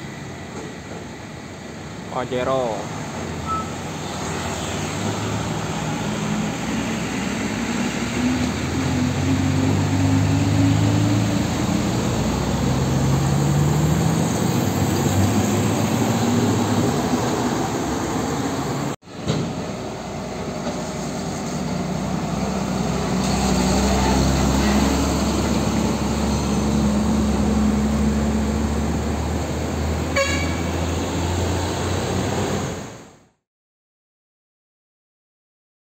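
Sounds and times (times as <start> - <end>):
diesel truck engines passing: 0.0 - 33.2
truck horn toot: 30.1 - 30.9.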